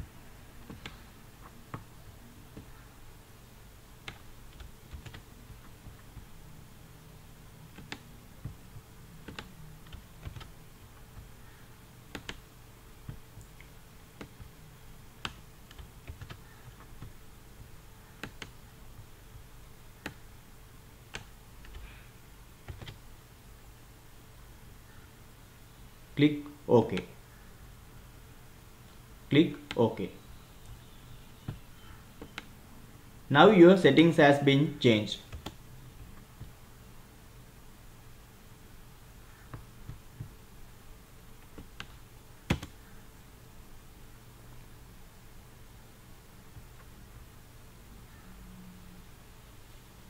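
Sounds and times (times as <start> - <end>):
steady low hum: 0.0 - 50.0
keyboard key presses: 4.0 - 6.3, 7.7 - 10.5, 12.1 - 12.4, 15.2 - 19.1, 21.1 - 21.9, 22.7 - 23.0, 32.2 - 32.5, 41.4 - 42.8
mouse clicks: 31.4 - 32.5.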